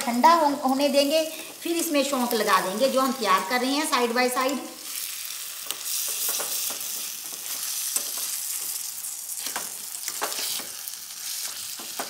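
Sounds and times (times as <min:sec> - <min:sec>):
vegetables sizzling in butter: 0:00.0 - 0:12.0
metal spoon scraping pan: 0:09.4 - 0:12.0.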